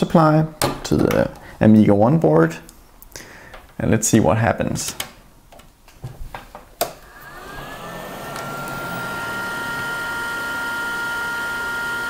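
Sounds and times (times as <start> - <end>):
cooling fans whirring: 7.0 - 12.0.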